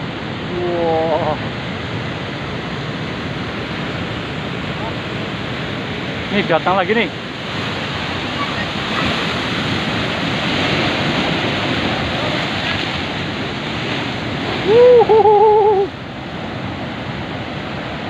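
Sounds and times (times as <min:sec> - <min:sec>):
ocean waves breaking on rock: 0:00.0 - 0:18.0
short wavering call: 0:14.6 - 0:15.9.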